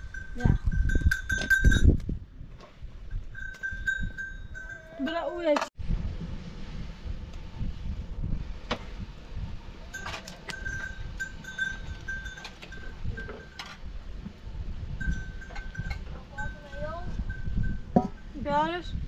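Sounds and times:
livestock bells ringing: 0:00.0 - 0:02.0, 0:03.1 - 0:05.6, 0:09.9 - 0:13.8, 0:15.0 - 0:18.8
low steady rumble: 0:05.8 - 0:10.0.

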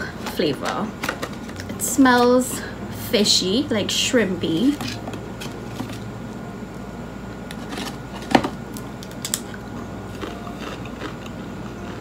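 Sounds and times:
crisp crunching: 0:07.5 - 0:12.0.

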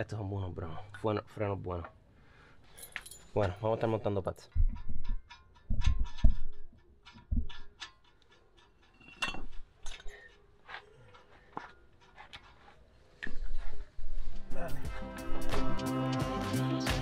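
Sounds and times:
metallic clinks of tools: 0:02.6 - 0:03.7, 0:07.6 - 0:10.4.

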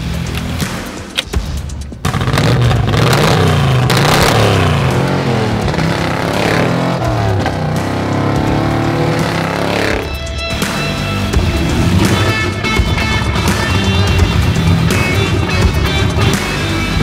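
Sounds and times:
car engine accelerating hard: 0:02.1 - 0:10.8.

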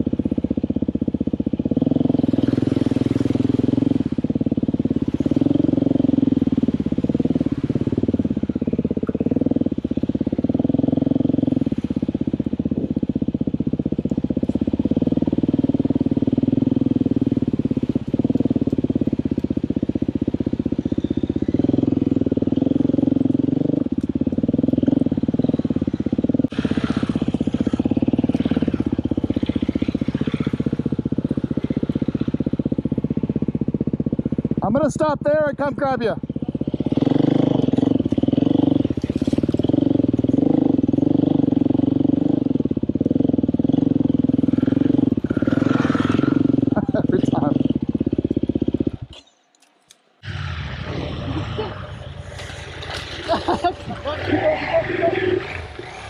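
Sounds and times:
dirt bike engine revving: 0:00.0 - 0:49.3, 0:50.2 - 0:56.0
rushing noise: 0:50.2 - 0:56.0.

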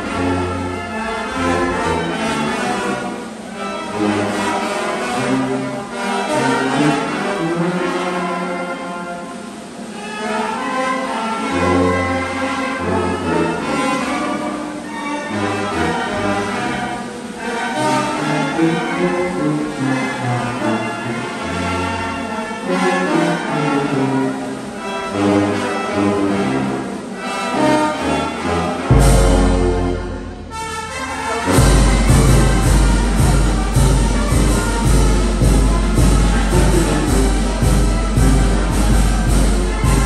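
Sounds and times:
sustained melody: 0:00.0 - 0:40.0
bass line in long notes: 0:28.9 - 0:40.0.

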